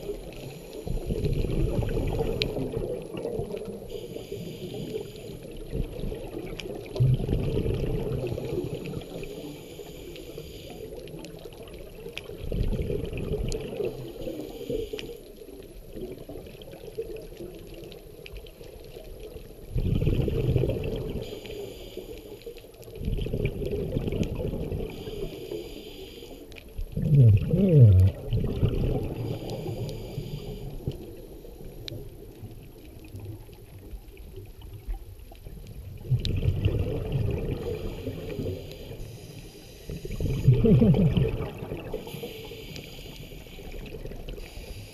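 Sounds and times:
bubbles rushing on exhale: 0:00.0 - 0:04.0, 0:05.5 - 0:09.3, 0:11.4 - 0:14.3, 0:19.6 - 0:21.3, 0:22.9 - 0:25.0, 0:26.8 - 0:29.9, 0:35.8 - 0:39.0, 0:39.9 - 0:42.4
regulator hiss on inhale: 0:00.2 - 0:02.8, 0:03.7 - 0:06.0, 0:08.2 - 0:11.5, 0:13.8 - 0:15.6, 0:21.1 - 0:22.9, 0:24.8 - 0:26.8, 0:29.0 - 0:32.0, 0:37.6 - 0:40.6, 0:41.9 - 0:44.9.

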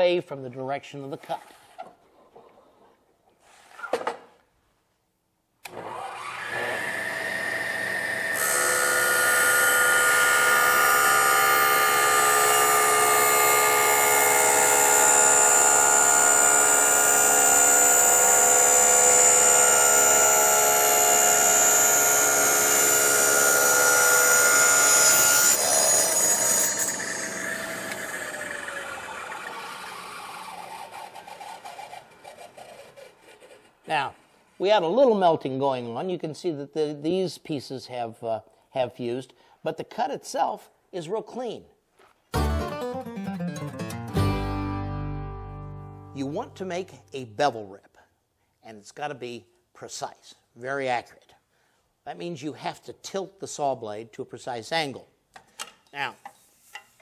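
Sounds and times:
table saw motor whining: 0:05.6 - 0:33.7
saw blade cutting plastic sheet: 0:05.6 - 0:34.4.

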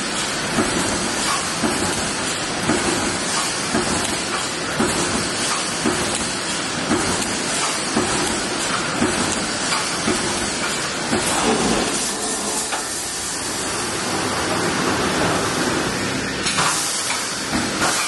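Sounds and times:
welding machine hissing: 0:00.0 - 0:13.8
machine knocking: 0:00.2 - 0:12.9.

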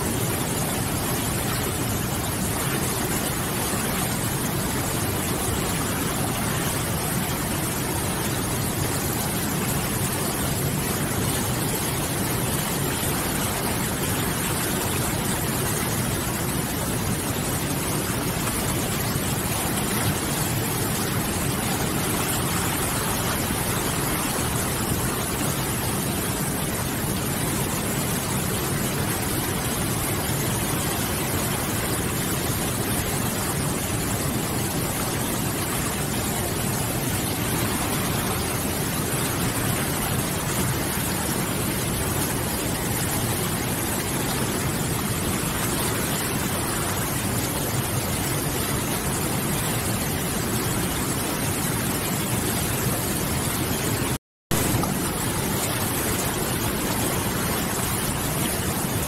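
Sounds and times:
river rapids rushing: 0:00.0 - 0:59.0.

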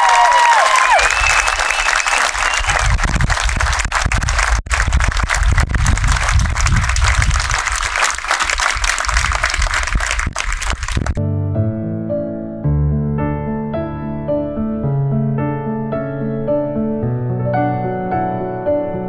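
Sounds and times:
crowd cheering: 0:00.0 - 0:05.5, 0:06.1 - 0:11.1
crowd clapping: 0:00.0 - 0:11.2.

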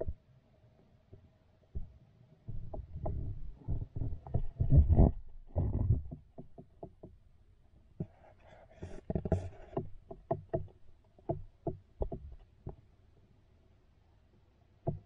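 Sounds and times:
muffled underwater knocks: 0:09.1 - 0:12.8.

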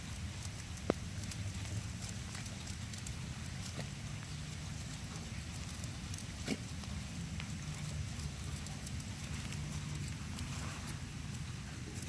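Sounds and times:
light rain pattering: 0:00.0 - 0:12.0.

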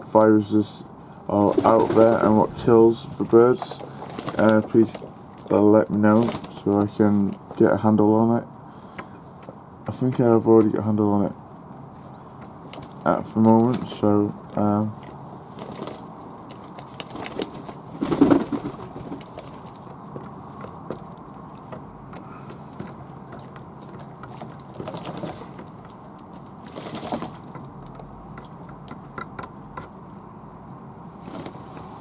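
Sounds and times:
doves cooing: 0:00.9 - 0:07.4, 0:12.0 - 0:29.9.

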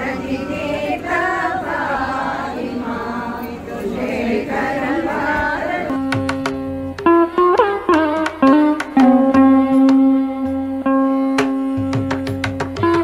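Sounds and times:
group chanting in unison: 0:00.0 - 0:06.0
plucked string notes: 0:05.9 - 0:13.0
tabla drumming: 0:05.9 - 0:13.0.

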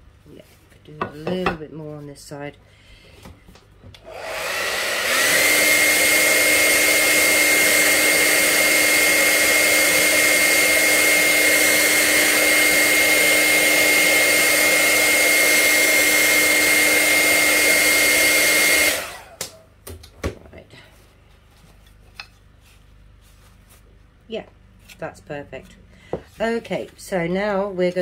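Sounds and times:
hair dryer running: 0:04.0 - 0:19.6.

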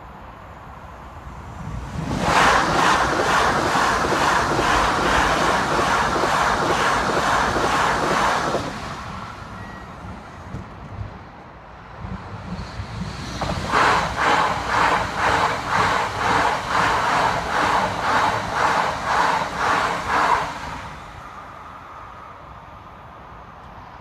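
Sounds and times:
train wheels clattering on rails: 0:02.0 - 0:21.0.

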